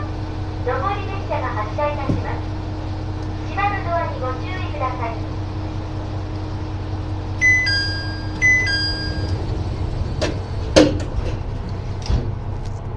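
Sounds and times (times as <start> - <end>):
diesel engine idling hum: 0.0 - 12.9
two-note electronic chime: 7.4 - 9.4
sliding doors knocking shut: 8.4 - 12.4.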